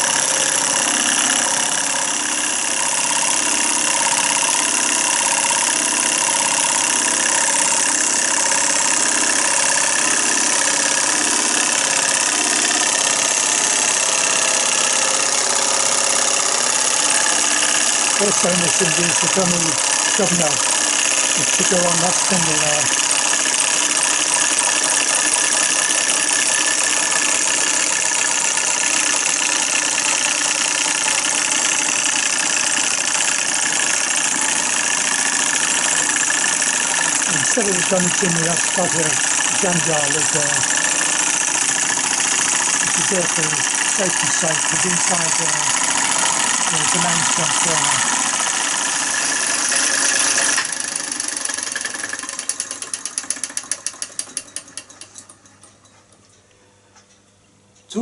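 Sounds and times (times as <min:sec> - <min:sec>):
sharp mechanical clicks: 0:00.0 - 0:55.4
solenoid toy engine running: 0:00.0 - 0:55.6.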